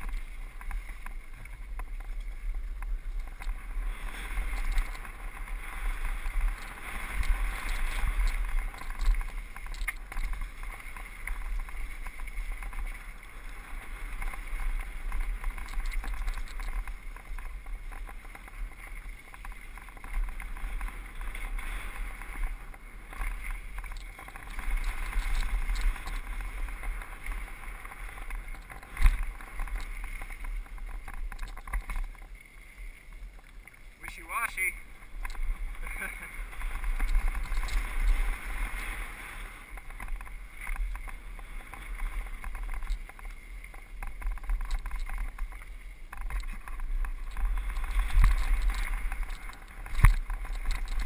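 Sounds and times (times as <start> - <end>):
bike clicks and rattles: 0.0 - 32.4, 33.2 - 51.0
wind buffeting microphone: 33.1 - 51.0.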